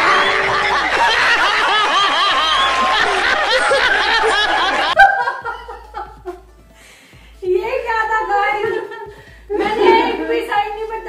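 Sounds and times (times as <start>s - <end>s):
group of people laughing: 0.0s - 6.4s.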